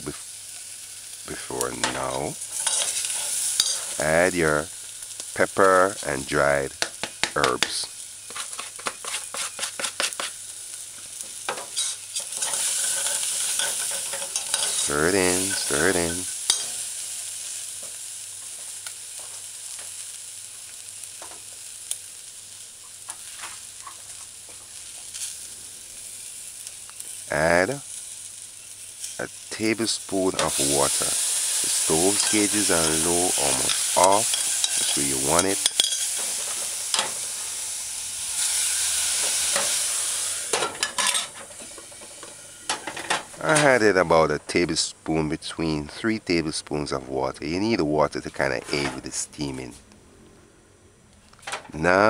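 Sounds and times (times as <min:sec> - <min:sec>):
food sizzling in a saucepan: 0:00.0 - 0:49.8
spoon stirring: 0:11.8 - 0:15.7.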